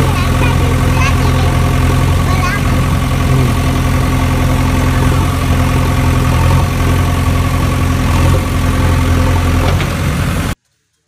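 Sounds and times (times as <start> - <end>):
engine idling: 0.0 - 10.6.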